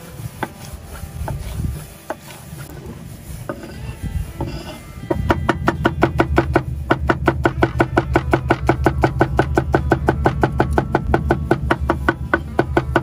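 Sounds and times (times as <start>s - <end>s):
meat pounded on stone: 5.1s - 13.0s.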